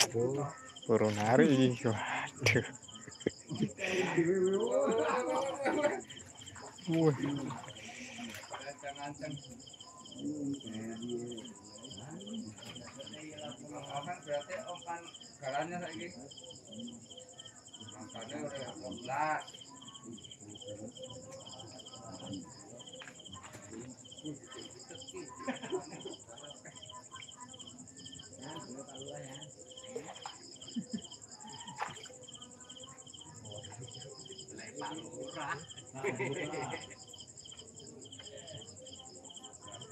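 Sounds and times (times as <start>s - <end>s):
faint murmuring voices: 0.0s - 39.9s
pulsing insect chirp: 0.0s - 39.9s.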